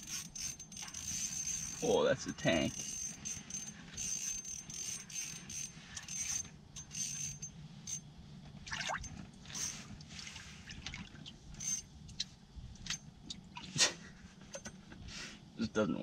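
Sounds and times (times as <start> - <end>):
fishing reel clicking: 0.0 - 1.9, 2.7 - 8.0.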